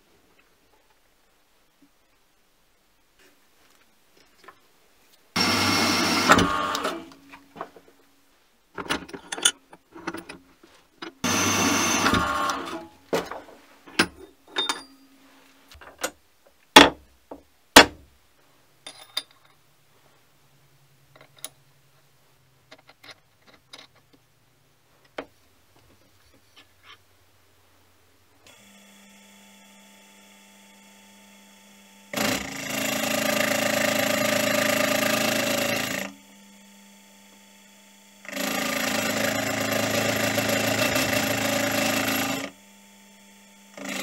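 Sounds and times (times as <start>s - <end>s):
metal clicks and knocks: 8.8s - 10.4s, 13.2s - 15.0s.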